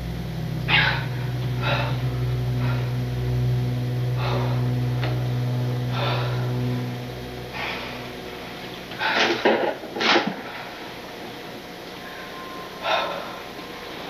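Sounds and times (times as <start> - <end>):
steady low hum: 0.0 - 14.0
person breathing heavily: 0.7 - 3.4, 4.0 - 8.2, 8.9 - 9.4, 12.8 - 13.6.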